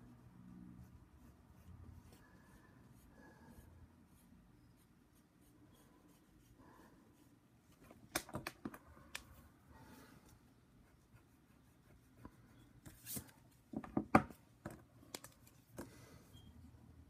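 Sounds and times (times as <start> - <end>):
pen scratching on paper: 0.8 - 7.3.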